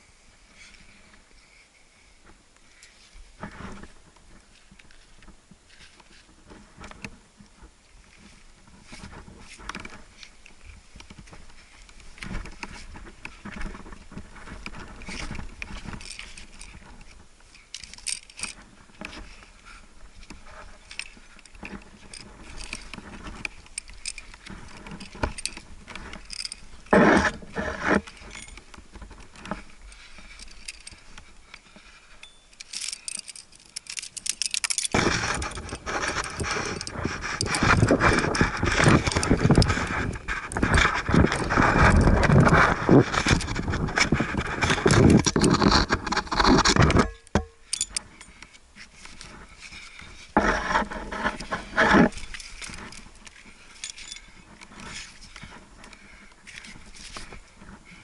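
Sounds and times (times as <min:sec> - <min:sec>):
scrapes and knocks on rock: 0:02.8 - 0:32.1, 0:32.7 - 0:58.0
climbing gear clinking: 0:08.0 - 0:58.0.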